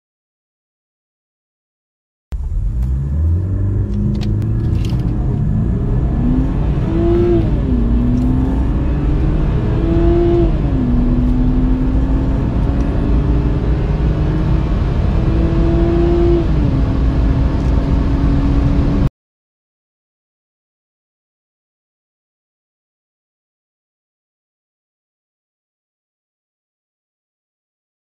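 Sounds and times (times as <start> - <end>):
car engine accelerating: 2.4 - 19.1.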